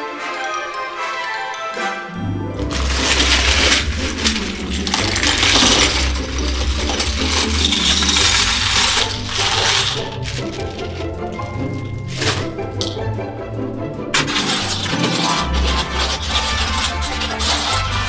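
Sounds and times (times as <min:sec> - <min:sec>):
plastic bricks clattering: 0:02.6 - 0:13.1, 0:14.1 - 0:18.0.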